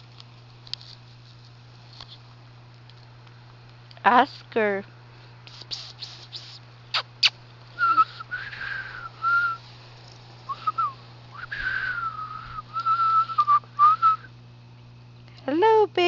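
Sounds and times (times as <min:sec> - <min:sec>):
person whistling: 0:07.8 - 0:09.6, 0:10.5 - 0:14.3.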